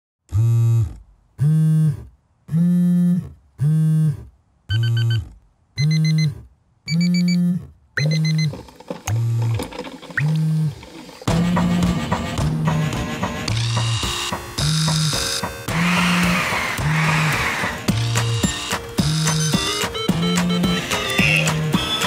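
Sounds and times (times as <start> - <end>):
pulsing electronic buzz: 0.3 - 8.5
short high beeps: 5.8 - 8.5
clattering electronic texture: 8.0 - 21.4.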